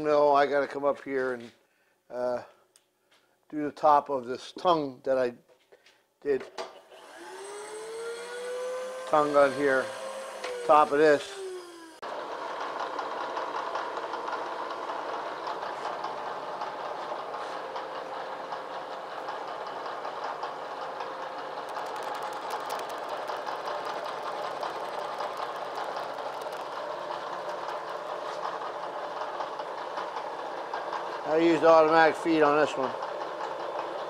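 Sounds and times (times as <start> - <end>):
milling machine cutting metal: 6.9 - 14.7, 19.9 - 31.2.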